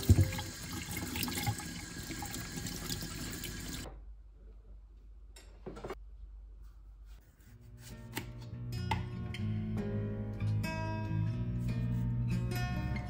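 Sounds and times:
tap water splashing in a sink: 0.0 - 3.9.

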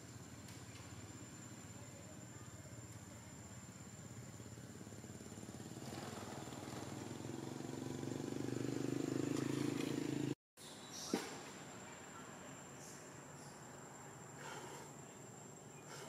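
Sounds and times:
passing vehicle engine: 5.0 - 10.4.

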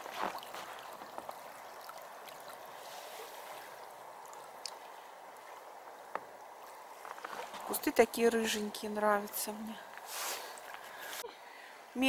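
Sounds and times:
river water rushing: 0.0 - 7.7.

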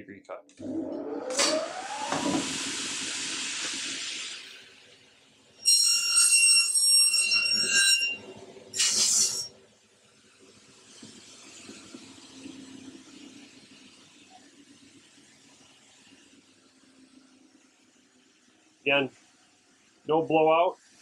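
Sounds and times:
pneumatic hiss: 1.3 - 4.9, 8.8 - 9.5
saw screeching through metal: 5.6 - 9.5
saw blade whine: 5.6 - 9.6.

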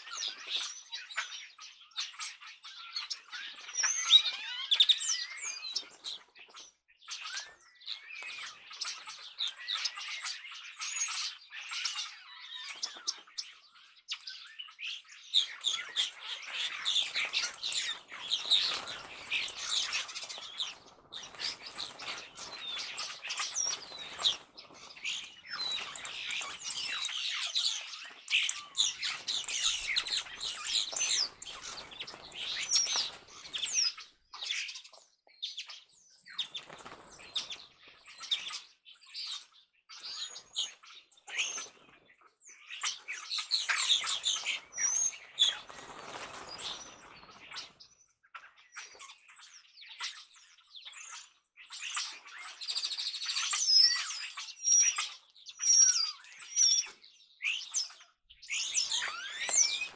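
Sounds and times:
starlings chattering: 7.2 - 34.9, 42.6 - 48.0, 57.6 - 59.9
wings flapping: 15.5 - 34.0, 36.4 - 37.7, 43.6 - 47.8, 58.7 - 59.9.

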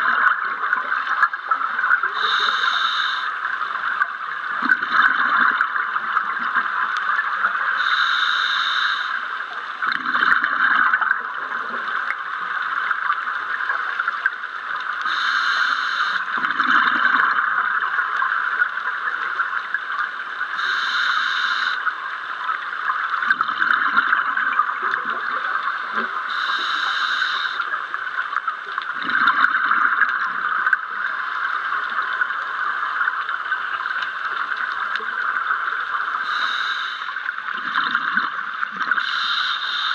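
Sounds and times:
exhaled bubbles rumbling: 0.0 - 2.1, 4.0 - 7.6, 9.8 - 14.4, 16.3 - 18.8, 22.5 - 26.3, 28.4 - 36.0, 37.3 - 39.1
steady crackling hiss: 0.0 - 39.9
regulator inhalation hiss: 2.2 - 3.4, 7.8 - 9.3, 15.0 - 16.4, 20.6 - 21.9, 26.3 - 27.7, 36.2 - 37.3, 39.0 - 39.9.

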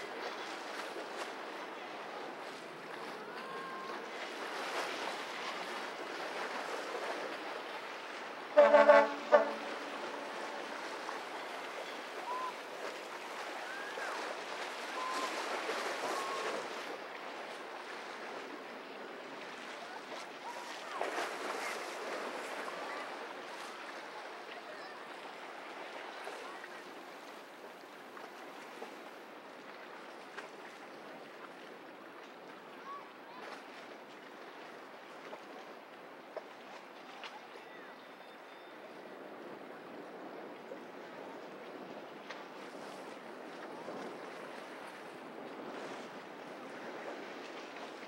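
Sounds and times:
water noise: 0.0 - 48.0
wind: 0.0 - 48.0
horn blast: 8.6 - 11.0.

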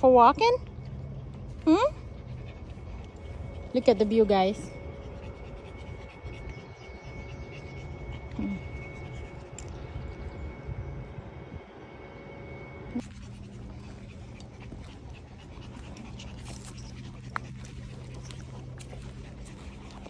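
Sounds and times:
small dog panting: 1.5 - 10.2, 13.0 - 20.0.

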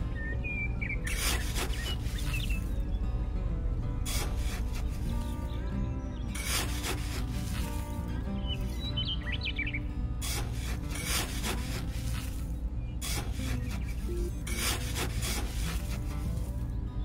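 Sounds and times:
trowel scraping damp sand: 1.0 - 2.8, 4.0 - 5.6, 6.3 - 8.9, 9.6 - 16.8.

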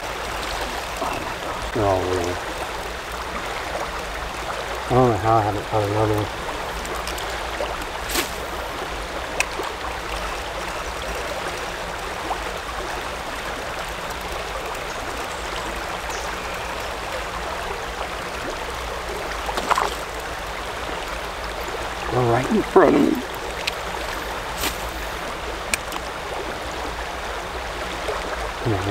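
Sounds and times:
creek water rushing: 0.0 - 28.9.

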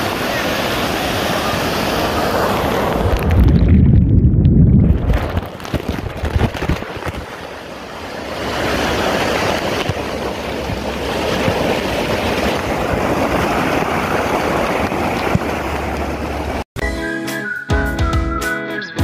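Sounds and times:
waterfall rushing over rock: 0.0 - 3.4, 5.4 - 16.6
water washing over microphone: 0.0 - 16.6.

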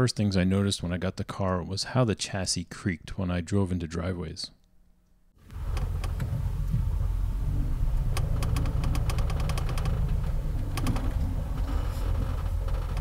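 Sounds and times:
car engine running low: 5.4 - 13.0
chassis creaking and clicking: 5.5 - 13.0.

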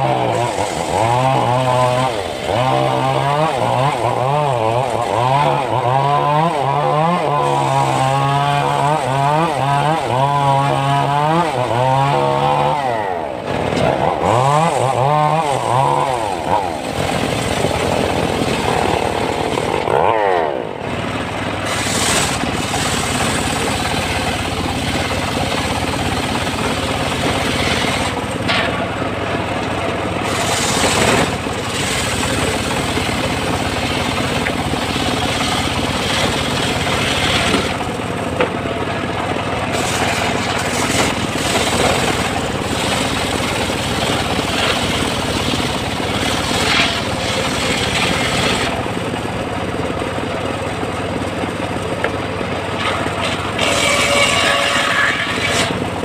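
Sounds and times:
circular sawmill ripping log: 0.0 - 56.0.

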